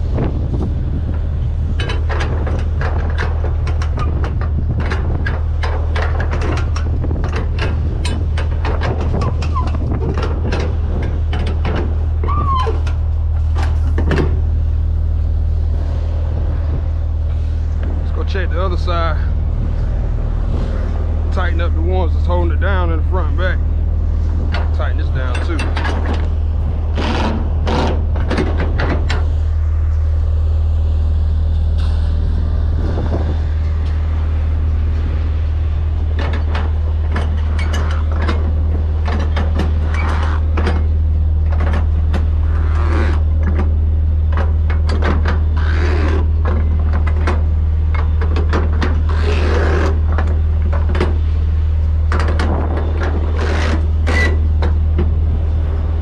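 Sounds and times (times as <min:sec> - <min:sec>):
truck engine idling: 0:00.0 - 0:56.0
winch bar and ratchet clanking: 0:01.0 - 0:14.6, 0:20.9 - 0:29.4, 0:35.0 - 0:56.0.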